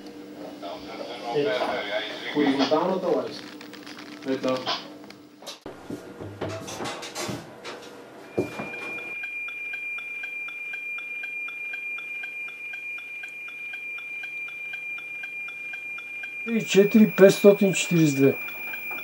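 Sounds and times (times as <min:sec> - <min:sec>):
high-pitched electronic whine: 0:08.3 - 0:19.0.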